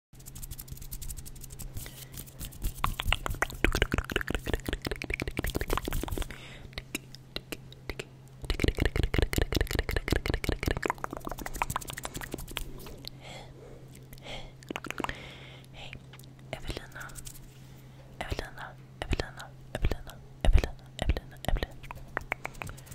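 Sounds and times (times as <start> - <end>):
steady low hum: 0.2 - 22.9
wet mouth clicks and pops: 2.6 - 13.1, 14.1 - 15.2, 21.5 - 22.9.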